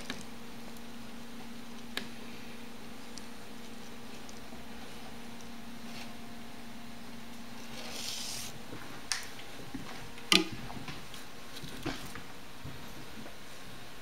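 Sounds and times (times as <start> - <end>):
steady low hum: 0.0 - 14.0
gerbils rustling in paper bedding: 7.4 - 10.2.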